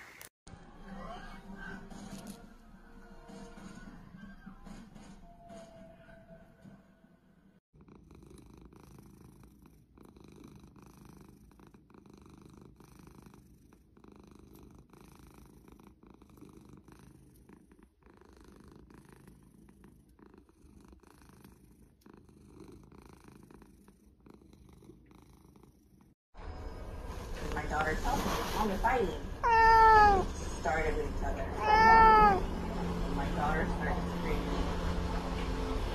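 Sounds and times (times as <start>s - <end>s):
cat purring: 7.8s - 26.2s, 27.5s - 34.8s.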